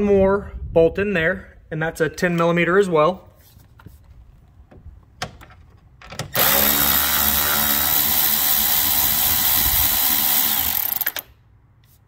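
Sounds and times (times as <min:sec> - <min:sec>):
electric ratchet motor running: 0:06.4 - 0:11.3.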